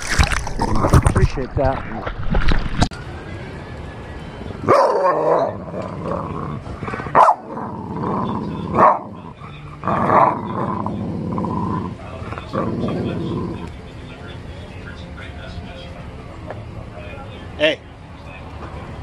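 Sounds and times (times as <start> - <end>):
water splash: 0.0 - 2.9
dog growling: 7.5 - 13.7.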